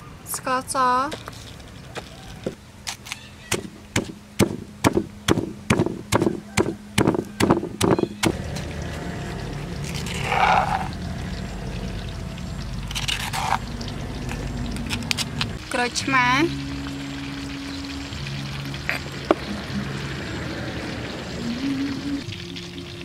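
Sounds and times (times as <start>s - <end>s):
pestle pounding in stone mortar: 3.5s - 8.4s
grinding and scraping paste: 8.5s - 11.0s, 12.9s - 13.7s
metal spoon scraping stone: 12.9s - 15.4s.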